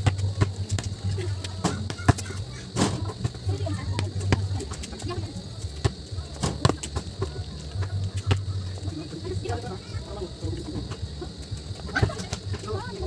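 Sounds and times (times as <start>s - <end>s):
basketball bouncing on court: 0.0s - 8.6s
faint voices: 0.0s - 13.0s.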